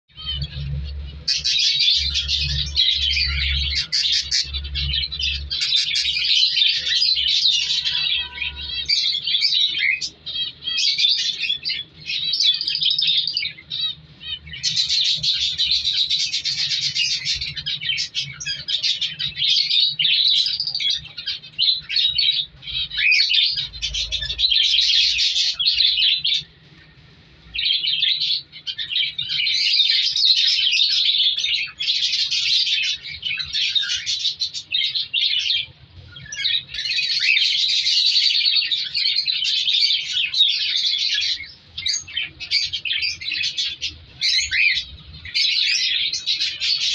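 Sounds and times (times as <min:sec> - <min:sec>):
budgerigars chattering: 0:00.1 - 0:26.6, 0:27.6 - 0:46.9.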